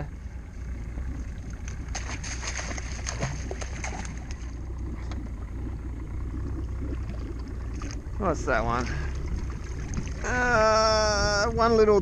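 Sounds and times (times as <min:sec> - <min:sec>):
outboard motor idling: 0:00.0 - 0:12.0
water lapping at hull: 0:00.0 - 0:12.0
splash in water: 0:01.7 - 0:04.5.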